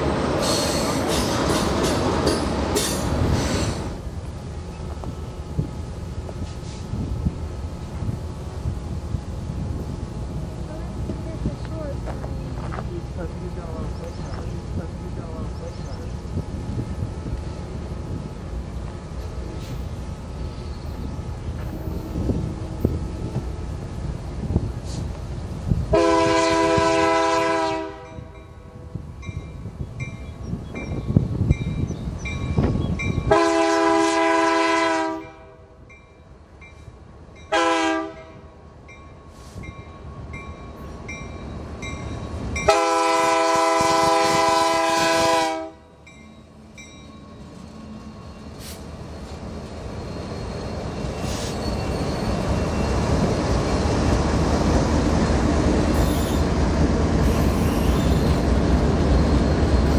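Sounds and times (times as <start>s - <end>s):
locomotive rumble: 0.0s - 59.9s
locomotive air horn: 25.9s - 28.3s, 33.3s - 35.8s, 37.5s - 38.4s, 42.7s - 45.8s.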